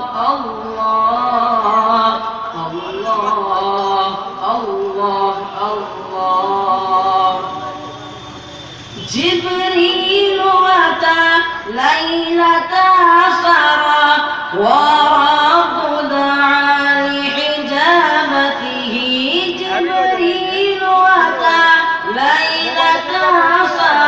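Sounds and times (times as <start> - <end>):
high voice chanting: 0.0 - 8.2, 14.5 - 24.0.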